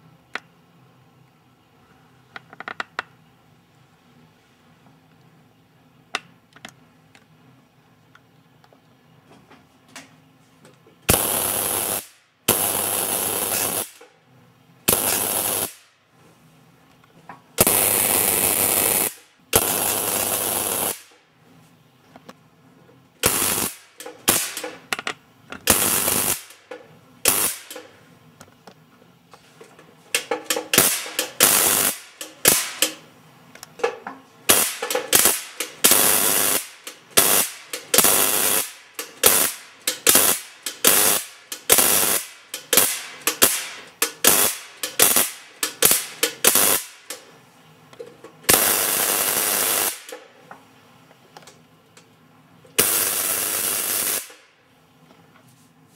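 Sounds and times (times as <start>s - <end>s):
tesla coil sparks crackling: 11.1s - 14.0s, 14.9s - 15.9s, 17.6s - 21.2s, 23.2s - 24.9s, 25.6s - 26.6s, 27.2s - 27.8s, 30.2s - 33.0s, 34.5s - 47.2s, 48.5s - 50.2s, 52.8s - 54.4s.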